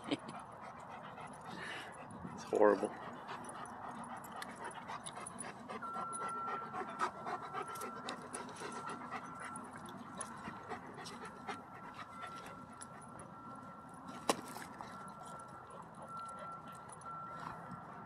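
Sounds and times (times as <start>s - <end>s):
dog panting: 0.2s - 13.7s.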